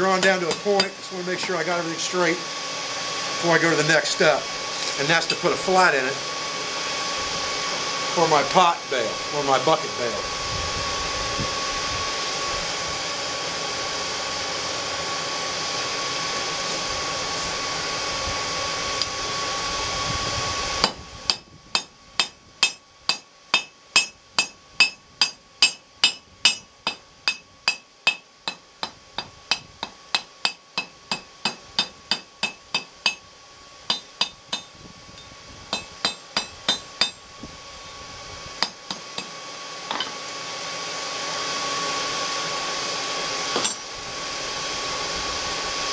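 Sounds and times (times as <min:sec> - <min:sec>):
forge blower whirring: 0:00.0 - 0:45.9
hammer ringing on anvil: 0:00.2 - 0:01.5, 0:21.3 - 0:26.7, 0:33.9 - 0:34.7, 0:35.7 - 0:37.2.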